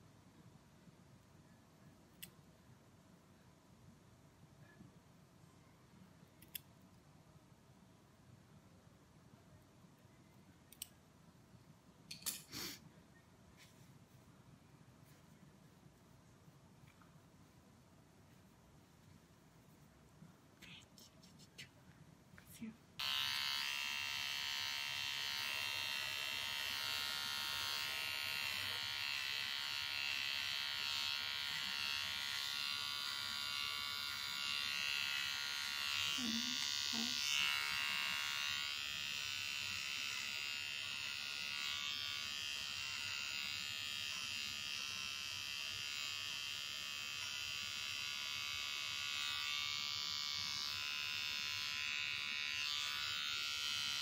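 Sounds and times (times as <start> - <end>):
electric pet trimmer buzzing: 23.0 - 54.0.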